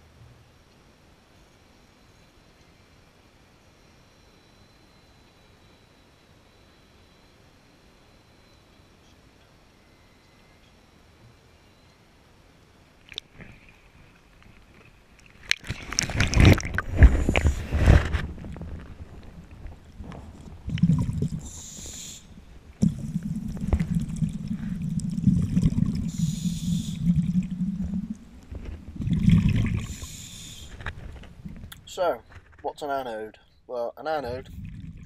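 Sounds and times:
splashing into water: 15.2s - 31.7s
underwater bubbles gurgling: 15.4s - 31.7s, 34.2s - 35.0s
regulator hiss: 21.2s - 28.5s, 29.6s - 30.9s.

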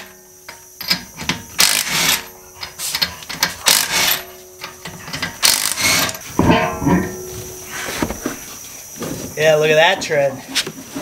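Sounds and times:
impact wrench hammering lug nuts: 0.8s - 2.3s, 3.0s - 7.6s.

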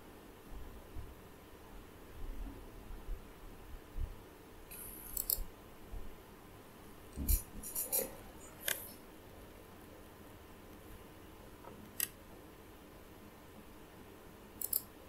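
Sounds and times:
room hiss: 0.0s - 15.0s
computer mouse clicking: 4.7s - 5.5s, 11.8s - 12.2s, 14.6s - 14.9s.

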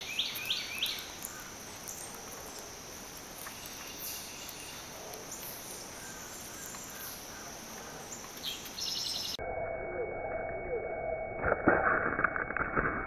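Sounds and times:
faint chirps and clicks: 0.0s - 9.4s
insect chorus: 0.0s - 11.3s.

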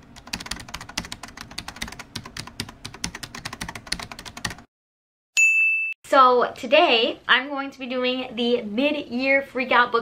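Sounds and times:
fast typing on keyboard: 0.0s - 4.7s.

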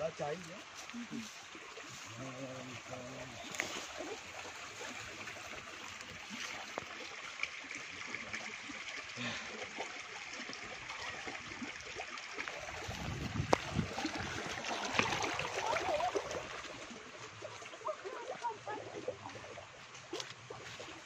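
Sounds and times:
stream trickling over rocks: 0.0s - 21.0s
footsteps on a trail: 0.4s - 2.4s, 3.3s - 7.0s, 17.2s - 21.0s.

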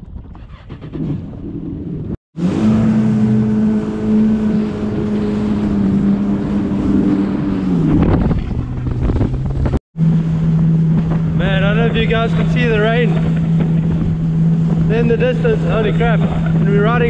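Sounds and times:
jet ski engine whine: 1.7s - 17.0s
rushing water: 2.4s - 8.3s
wind on the microphone: 4.4s - 17.0s.

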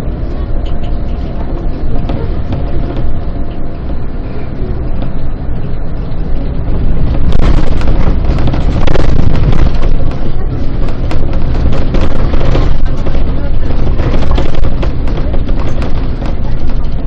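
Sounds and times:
bus engine and road rumble: 0.0s - 17.0s
knocks and rattles: 1.1s - 4.1s, 6.6s - 17.0s.

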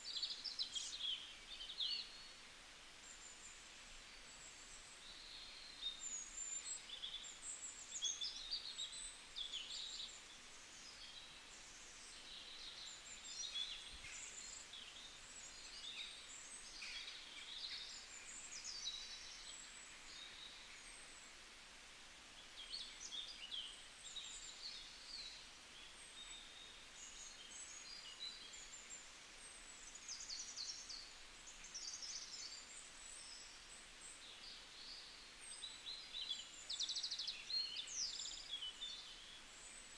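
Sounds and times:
small birds chirping: 0.0s - 21.5s, 22.4s - 39.9s
faint background hiss: 0.0s - 39.9s.

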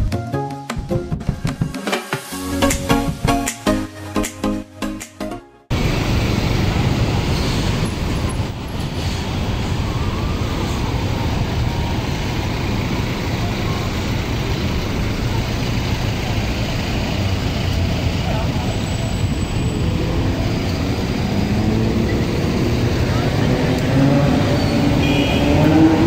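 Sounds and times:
rumble of passing vehicles: 5.7s - 26.0s.

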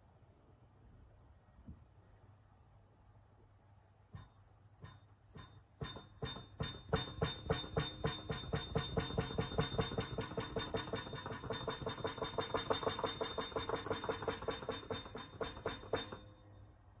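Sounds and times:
faint high whine: 16.1s - 17.0s.

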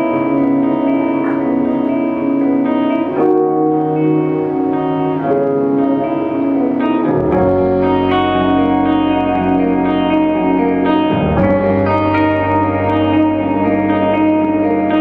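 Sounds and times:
electric guitars: 0.0s - 15.0s
keyboards playing chords: 0.0s - 15.0s
deep bass: 7.1s - 15.0s.

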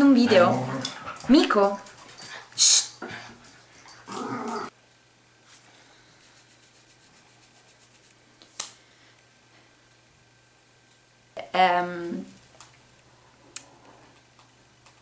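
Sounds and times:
dog growling: 0.2s - 1.5s, 3.0s - 4.8s.

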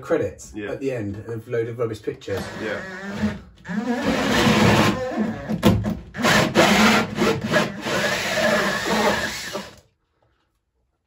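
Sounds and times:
drill hole saw rasping: 2.4s - 9.8s.

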